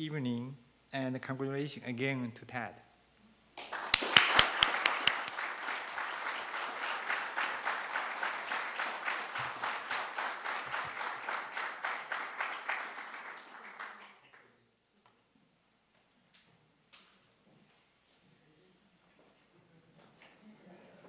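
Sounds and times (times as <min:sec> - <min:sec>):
loud close claps: 0:03.6 - 0:14.4
crowd applauding: 0:03.6 - 0:14.5.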